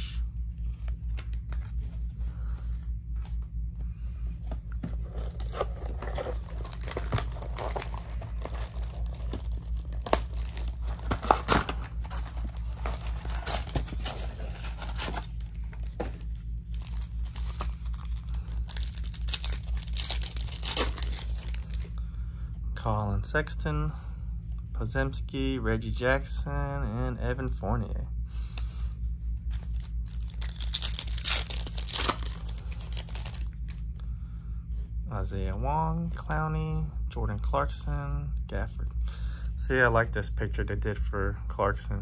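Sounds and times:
card packs tearing and crinkling: 4.8s - 21.9s, 29.5s - 33.8s.

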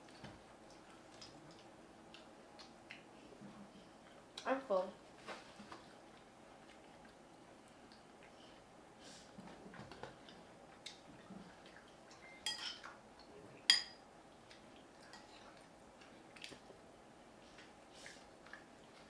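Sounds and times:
cutlery clinking against dishes: 12.2s - 13.0s, 13.7s - 14.0s.

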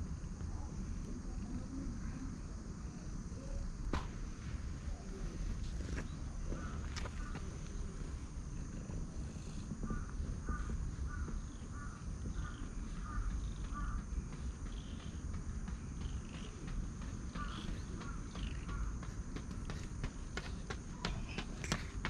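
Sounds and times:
crow cawing: 9.8s - 15.2s, 17.3s - 19.2s.

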